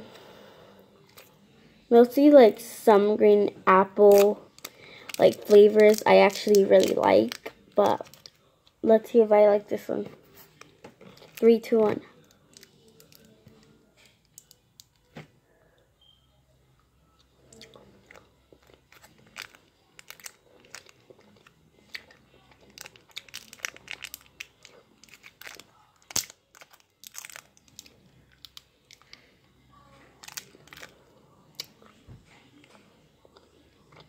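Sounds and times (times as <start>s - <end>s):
paper wrapper crinkling: 4.1s - 8.4s, 18.1s - 29.2s, 30.2s - 31.0s
chewing candy: 17.2s - 29.3s, 30.2s - 32.0s, 32.6s - 34.0s.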